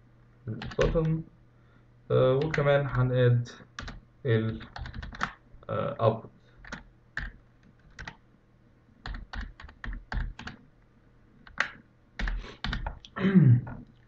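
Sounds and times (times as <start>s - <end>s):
typing on a keyboard: 0.6s - 1.1s, 2.4s - 2.6s, 3.8s - 5.4s, 6.6s - 8.2s, 9.0s - 10.6s, 11.5s - 13.0s.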